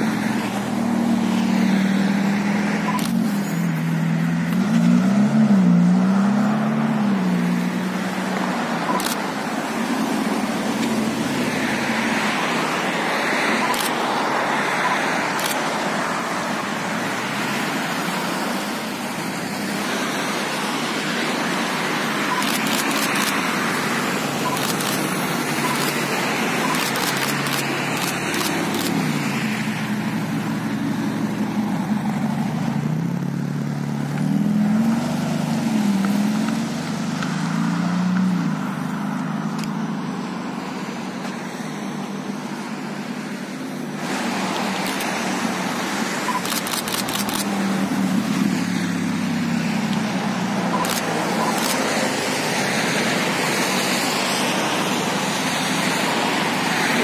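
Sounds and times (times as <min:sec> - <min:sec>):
car engine accelerating: 0:00.0 - 0:12.6
road traffic noise: 0:00.0 - 0:57.0
sharp clicks: 0:02.9 - 0:03.2, 0:08.9 - 0:09.2, 0:13.6 - 0:14.0, 0:22.3 - 0:23.4, 0:24.4 - 0:29.1, 0:46.3 - 0:47.5, 0:50.7 - 0:51.9.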